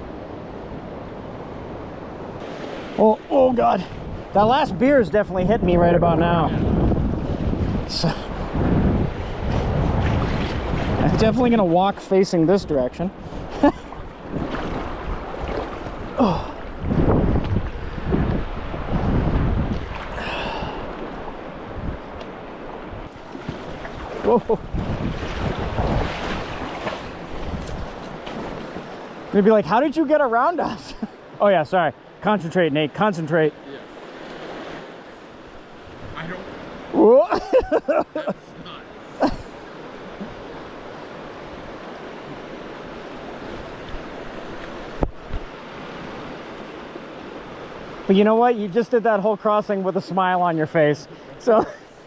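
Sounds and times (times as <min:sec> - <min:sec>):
river water rushing: 0:00.1 - 0:05.4, 0:06.5 - 0:52.0
wind buffeting microphone: 0:03.4 - 0:29.2
person exclaiming: 0:16.2 - 0:16.6, 0:36.9 - 0:37.5.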